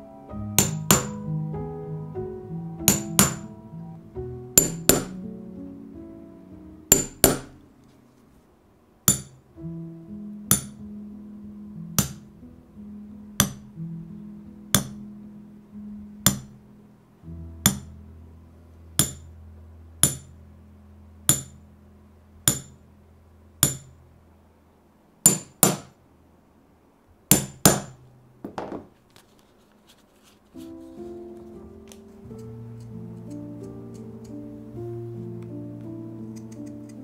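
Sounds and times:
hammer striking: 0.5 - 1.3, 2.6 - 3.7, 4.6 - 5.2, 6.9 - 7.6, 9.1 - 9.4, 10.5 - 10.8, 12.0 - 12.3, 13.4 - 13.7, 14.7 - 15.0, 16.2 - 16.6, 17.6 - 17.9, 19.0 - 19.3, 20.0 - 20.3, 21.3 - 21.6, 22.4 - 22.8, 23.6 - 24.0, 25.3 - 26.0, 27.3 - 28.9.

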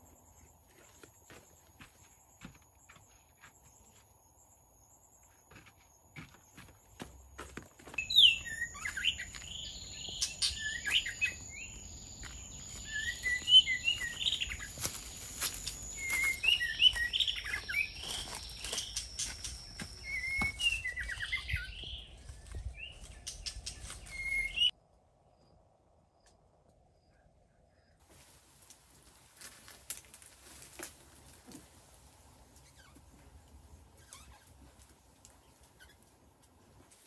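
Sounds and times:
birds chirping: 0.5 - 24.7, 32.5 - 36.7.

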